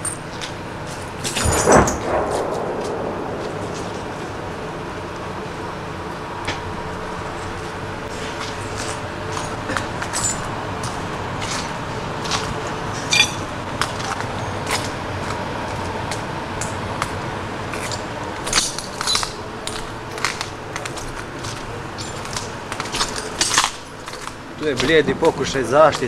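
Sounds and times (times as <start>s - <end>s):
footsteps crunching on glass: 8.1s - 15.4s, 17.8s - 26.0s
sharp glass clinks: 13.1s - 13.4s.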